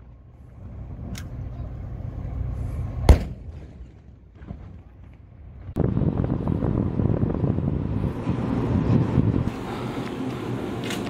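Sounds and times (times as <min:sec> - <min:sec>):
gunshot report: 0:03.1 - 0:03.8
wind rumble on microphone: 0:04.4 - 0:11.0.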